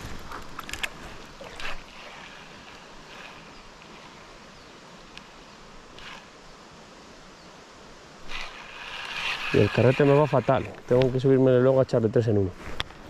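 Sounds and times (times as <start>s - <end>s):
river water rushing: 0.0s - 11.3s
faint click: 5.1s - 5.3s, 10.7s - 11.2s.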